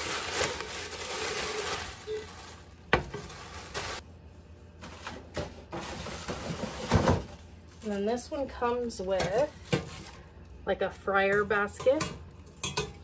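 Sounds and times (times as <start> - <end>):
plastic wrapping crinkling: 0.0 - 4.0, 4.8 - 10.3.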